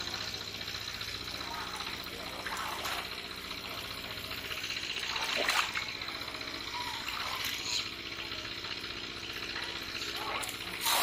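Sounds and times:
water sloshing and splashing: 1.6s - 3.4s, 4.9s - 6.0s, 9.6s - 11.0s.

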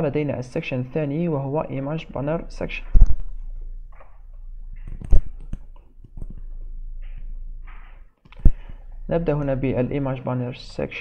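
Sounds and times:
faint rustling: 2.4s - 9.9s
computer mouse clicks: 4.8s - 6.5s.

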